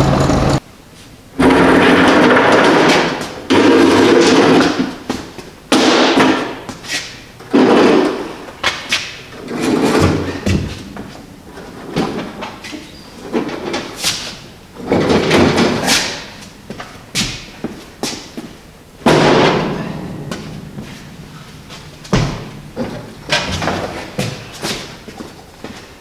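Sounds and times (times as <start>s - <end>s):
casters rumbling on concrete: 14.7s - 25.8s
metal clanks and knocks: 14.8s - 25.8s.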